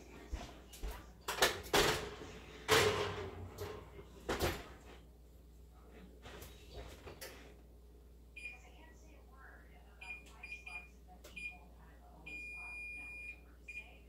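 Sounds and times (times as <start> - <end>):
oven door opening and shutting: 1.3 - 4.9.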